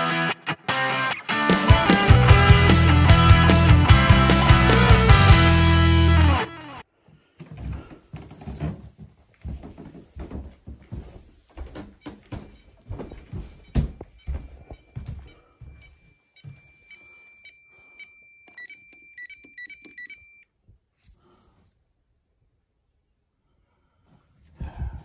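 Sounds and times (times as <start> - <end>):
footsteps on stairs and wooden floor: 7.0 - 17.0
high warning beep: 13.6 - 20.4
keypad key-press beeps: 16.4 - 20.4.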